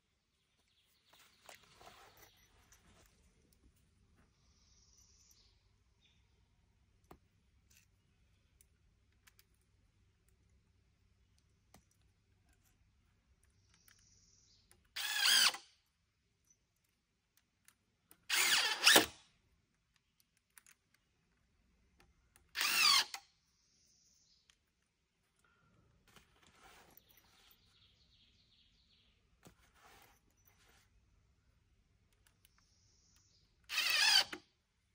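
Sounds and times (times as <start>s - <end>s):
power driver running screws: 14.9s - 15.7s, 18.2s - 19.2s, 22.4s - 23.2s, 33.6s - 34.5s.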